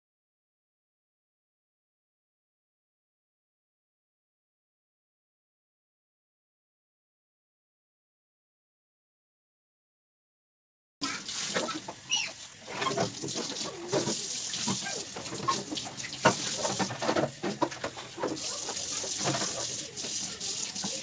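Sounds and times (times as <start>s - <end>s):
plastic parts clattering in sink: 11.0s - 21.0s
tap running into sink: 12.6s - 21.0s.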